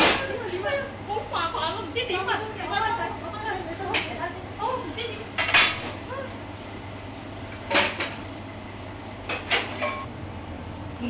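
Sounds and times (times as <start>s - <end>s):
steady low hum: 0.0s - 11.0s
metal pots and utensils clattering: 5.4s - 6.0s, 7.7s - 8.2s, 9.3s - 10.1s.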